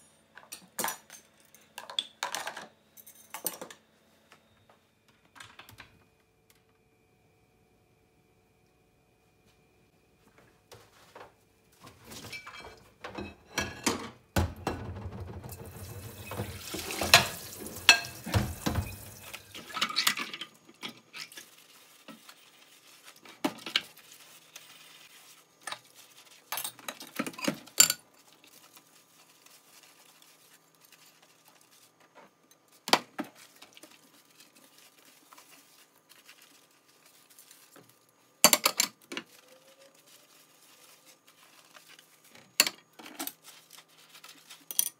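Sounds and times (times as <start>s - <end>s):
plates and pans clinking: 12.2s - 21.4s
sponge scrubbing dishes: 14.8s - 37.8s
running water: 15.4s - 20.0s.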